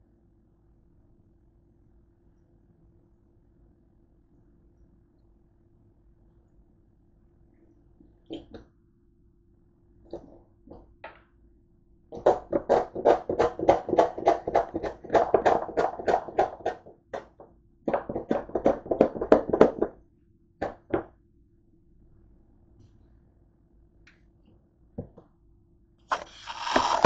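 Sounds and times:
squeeze bottle shaken knocking: 26.1 - 27.0.

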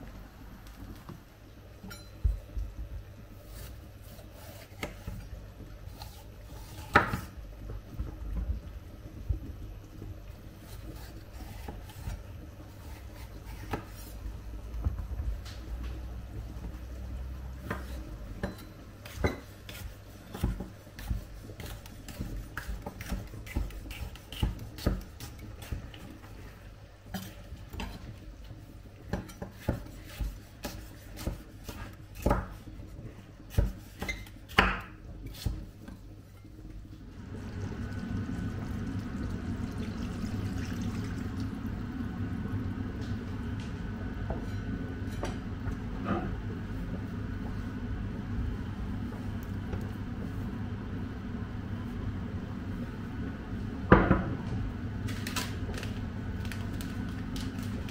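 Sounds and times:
cookware and utensils clinking: 1.8 - 2.3.

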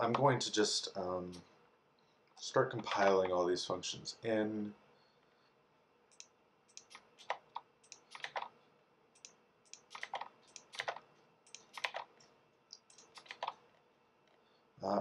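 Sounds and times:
keyboard keys clicking: 6.1 - 8.5, 9.2 - 12.1, 12.8 - 13.6.

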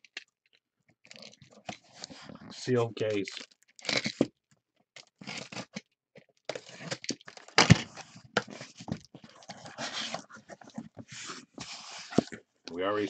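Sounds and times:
cardboard scraping and rustling: 6.5 - 12.4.

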